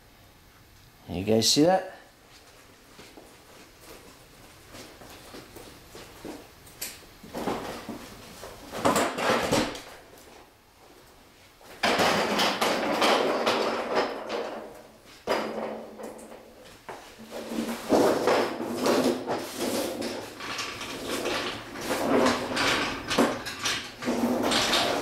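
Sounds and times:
creeper rolling on concrete: 11.8 - 25.0.

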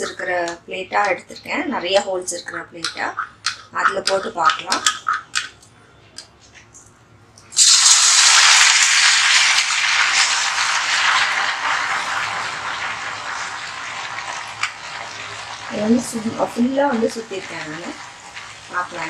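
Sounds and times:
dough sizzling in hot oil: 7.5 - 19.0.

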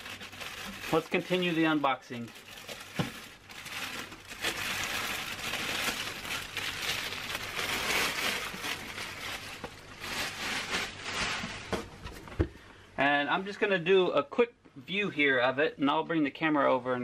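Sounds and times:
plastic wrapping crinkling: 0.0 - 12.2.

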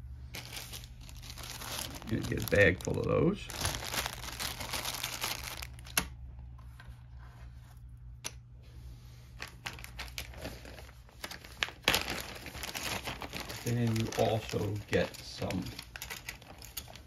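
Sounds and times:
plastic bag crinkling: 0.3 - 6.0, 9.4 - 17.0.

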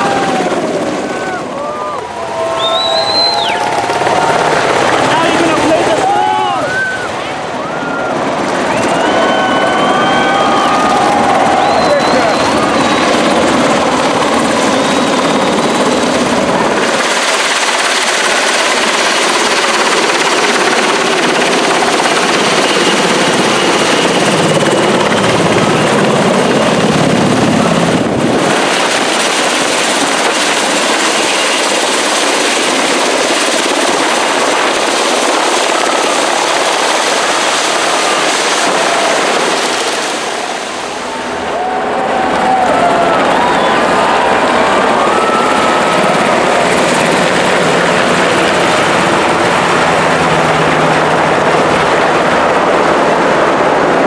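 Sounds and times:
helicopter flying overhead: 0.0 - 54.0.

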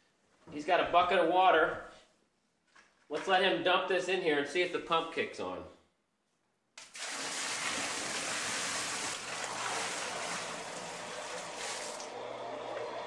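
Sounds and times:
water pouring and splashing: 6.8 - 12.1.

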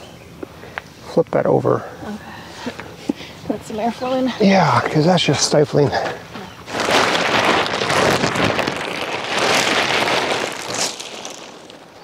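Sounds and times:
plastic tarp rustling and crinkling: 6.6 - 12.0.

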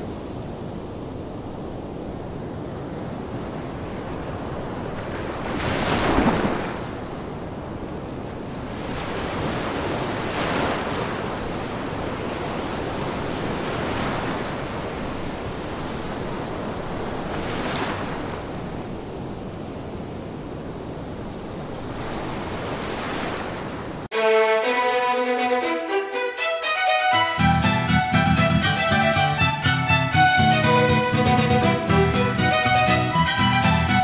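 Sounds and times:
waves breaking: 0.0 - 24.1.

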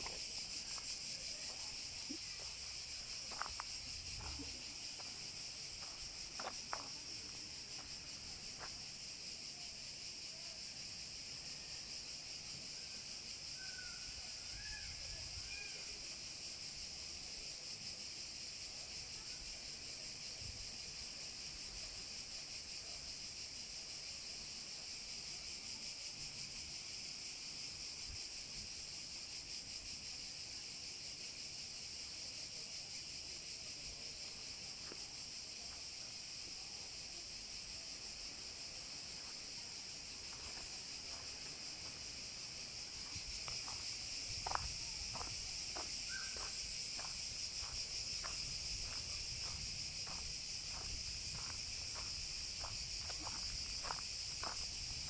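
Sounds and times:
cicadas buzzing: 0.0 - 55.0.

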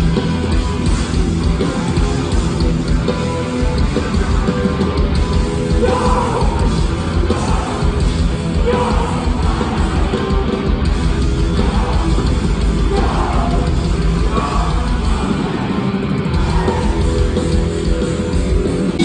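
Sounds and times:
punk band playing live: 0.0 - 19.0
shouted vocals: 5.7 - 10.4, 11.5 - 17.4.

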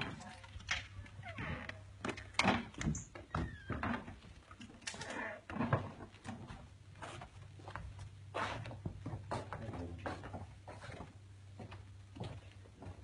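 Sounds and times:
footsteps on wooden floorboards: 5.5 - 13.0.

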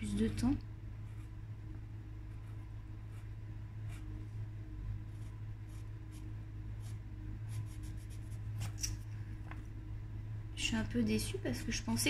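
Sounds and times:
steady low hum: 0.0 - 12.0
pencil scratching on paper: 6.8 - 8.8.

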